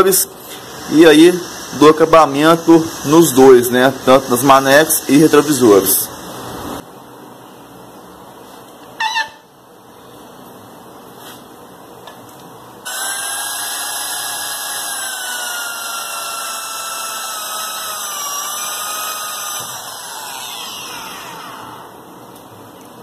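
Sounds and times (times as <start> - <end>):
electric drill whining into metal: 12.9 - 22.0.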